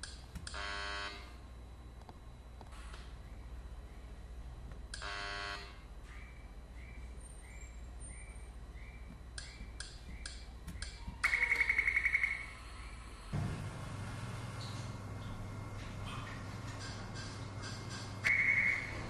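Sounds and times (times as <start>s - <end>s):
low hum: 0.0s - 19.0s
short buzzer tone: 0.5s - 1.4s, 5.0s - 5.9s
sharp clicks: 9.4s - 11.7s
faint high beeps: 10.9s - 13.3s.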